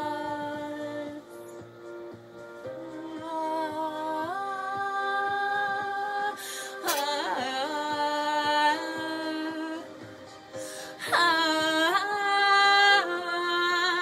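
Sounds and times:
breath: 0:06.4 - 0:06.8, 0:10.6 - 0:11.0.

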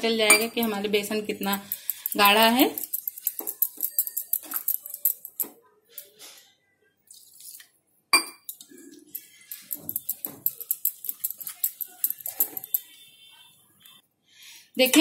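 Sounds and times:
whisk clinking metal bowl: 0:01.4 - 0:05.5, 0:09.2 - 0:12.8.

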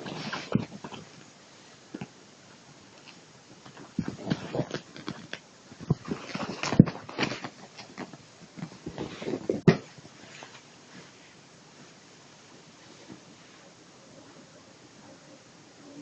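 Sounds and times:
cloth rustling and rubbing: 0:00.0 - 0:01.8, 0:02.9 - 0:13.7.

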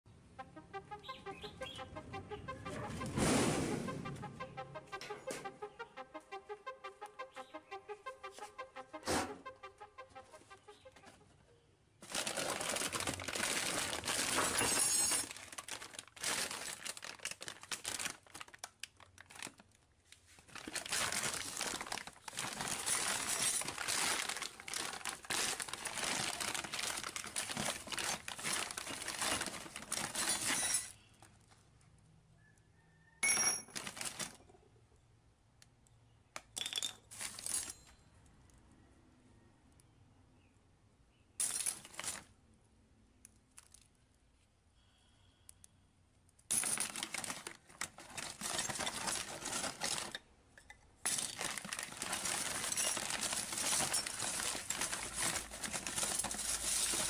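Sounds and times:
plastic bag crinkling: 0:12.0 - 0:30.6, 0:33.7 - 0:34.4, 0:46.5 - 0:50.2, 0:51.1 - 0:57.0
metal hardware rummaged: 0:14.1 - 0:15.5, 0:22.4 - 0:24.4, 0:27.6 - 0:31.0, 0:46.5 - 0:57.0.

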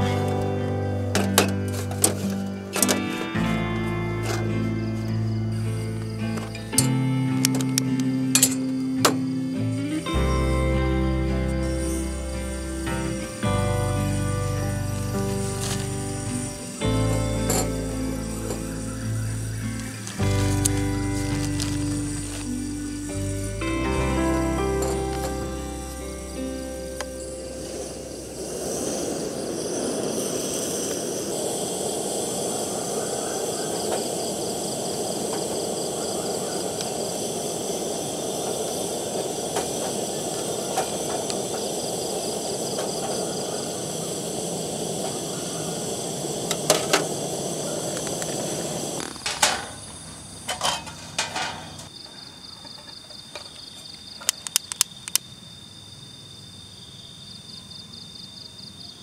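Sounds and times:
gas stove burner roaring: 0:00.0 - 0:51.9
insects trilling: 0:00.0 - 0:59.0
sharp clicks: 0:54.2 - 0:55.2.

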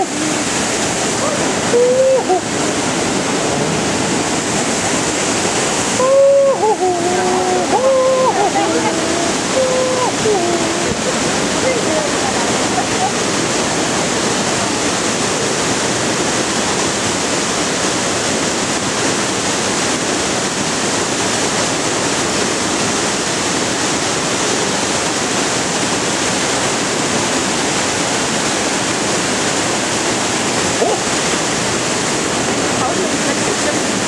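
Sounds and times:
waterfall rushing: 0:00.0 - 0:34.0.

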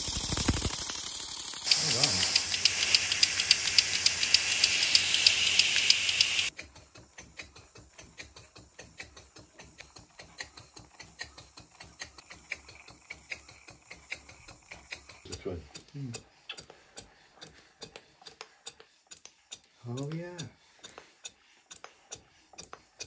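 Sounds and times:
small engine clicking: 0:00.0 - 0:23.0
steady hiss: 0:01.6 - 0:06.5.

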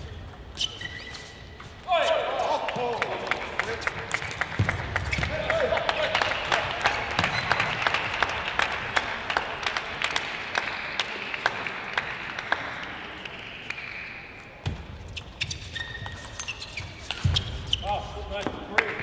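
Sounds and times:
spectators applauding: 0:02.5 - 0:14.0.

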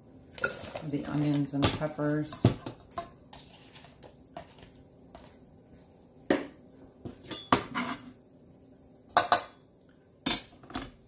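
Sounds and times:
knife scraping cutting board: 0:07.6 - 0:08.2.

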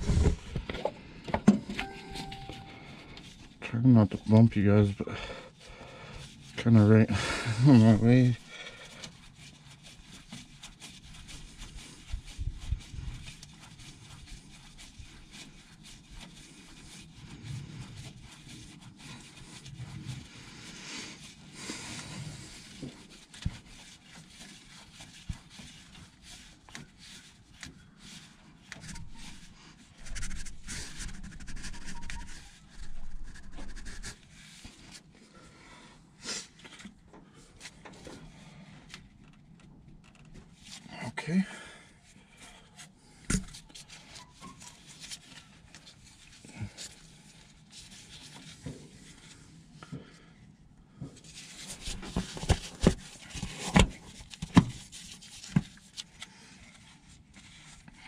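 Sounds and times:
man breathing hard: 0:05.0 - 0:06.3
rubbing and light knocks: 0:07.8 - 0:35.1, 0:42.0 - 0:58.0.

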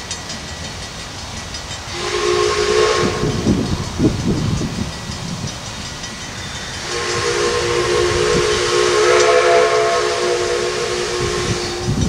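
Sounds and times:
steam hissing: 0:00.0 - 0:12.0
steam whistle chord: 0:01.9 - 0:03.8, 0:06.7 - 0:12.0.

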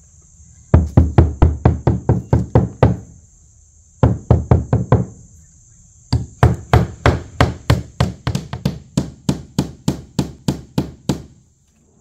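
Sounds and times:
hammer driving nails: 0:06.1 - 0:11.4.

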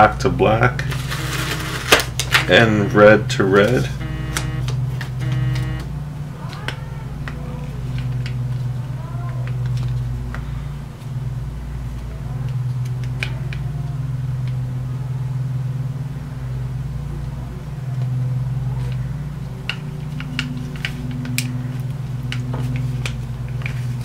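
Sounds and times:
steady low hum: 0:00.8 - 0:06.4.

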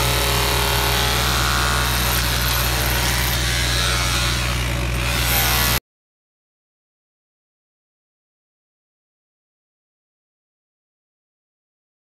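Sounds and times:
demolition hammer chipping stone: 0:00.0 - 0:05.8.

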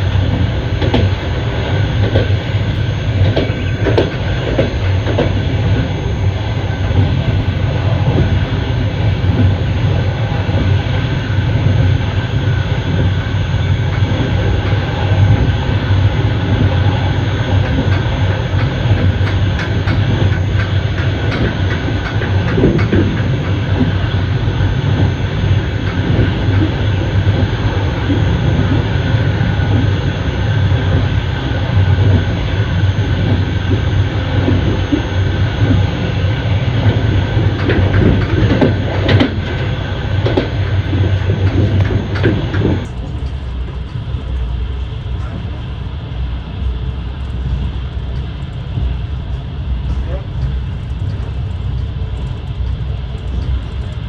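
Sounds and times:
wheels clicking over rails: 0:00.0 - 0:05.9, 0:13.8 - 0:30.0, 0:30.6 - 0:45.6
train carriage rumbling: 0:00.0 - 0:54.0.

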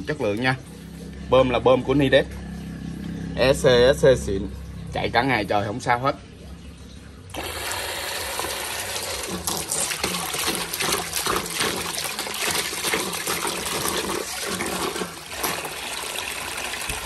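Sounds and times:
water gushing and splashing: 0:06.4 - 0:17.0.

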